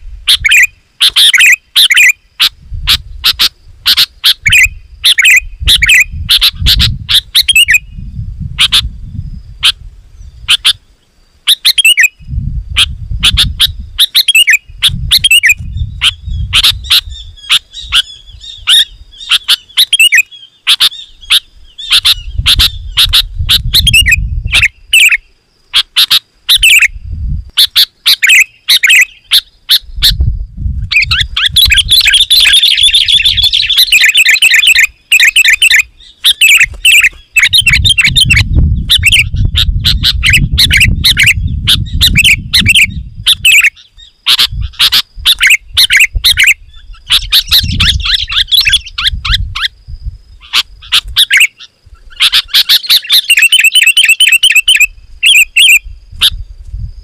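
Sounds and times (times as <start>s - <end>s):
bulbul chirping: 3.2s - 7.9s, 12.8s - 26.9s, 30.9s - 49.6s, 50.4s - 56.4s.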